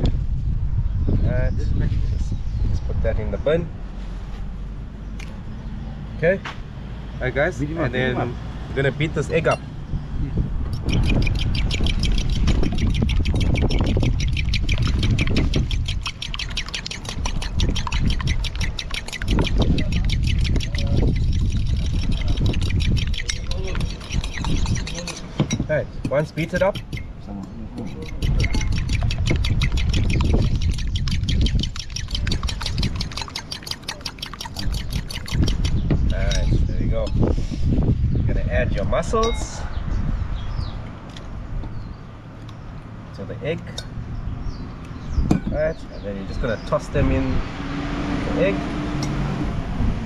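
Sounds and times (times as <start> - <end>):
steady low rumble: 0.0 - 16.2
fork tines clicking against bowl: 10.8 - 37.2.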